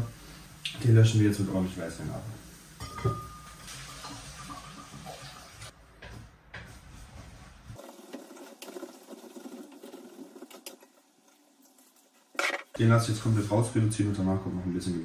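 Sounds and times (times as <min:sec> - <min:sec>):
wine sizzling and bubbling in hot pot: 0:00.0 - 0:05.8, 0:07.7 - 0:13.6.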